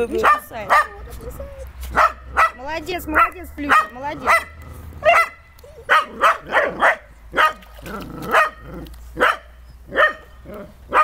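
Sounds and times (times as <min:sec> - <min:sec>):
puppy yapping: 0:03.7 - 0:11.0.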